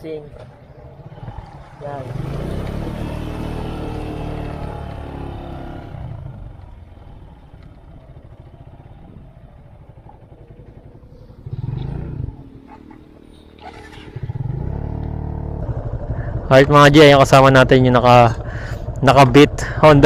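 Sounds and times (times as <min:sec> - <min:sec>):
motorcycle engine revving: 0:00.0 - 0:20.0
water splashing off wheels: 0:13.5 - 0:14.4.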